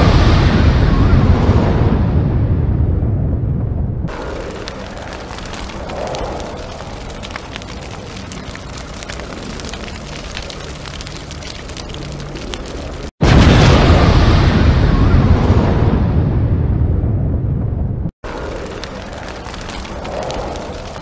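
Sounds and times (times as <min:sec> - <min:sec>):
fire crackling and popping: 0:04.1 - 0:14.4, 0:18.2 - 0:21.0.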